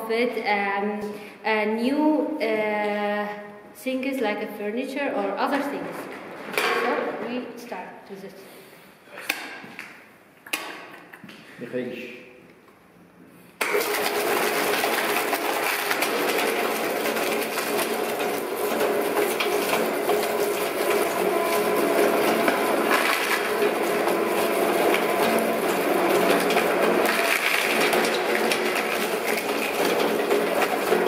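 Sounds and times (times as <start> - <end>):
plastic crunching and cracking: 13.6 - 31.0
shredder motor hum: 13.6 - 31.0.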